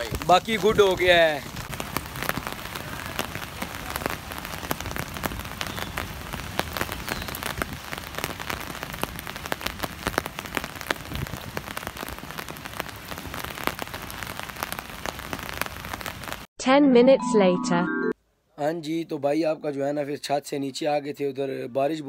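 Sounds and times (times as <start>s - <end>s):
rain falling: 0.0s - 16.5s.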